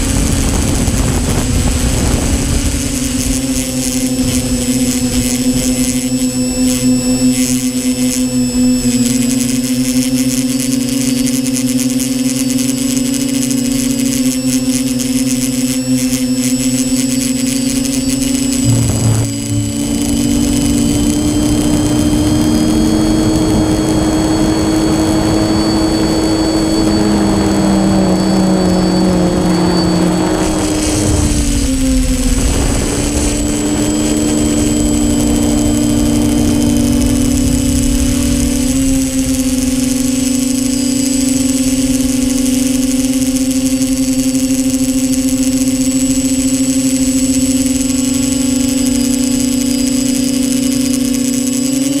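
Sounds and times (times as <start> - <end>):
drone propellers whirring: 0.0 - 52.0
faint high whine: 0.0 - 52.0.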